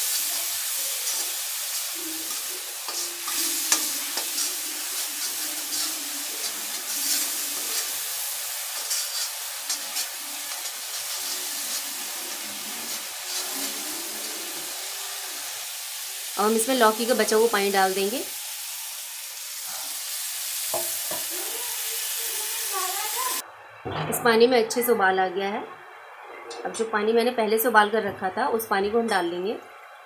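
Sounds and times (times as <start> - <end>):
spice paste sizzling in oil: 0.0 - 23.4
metal spoon scraping pan: 1.0 - 8.0, 8.7 - 14.4.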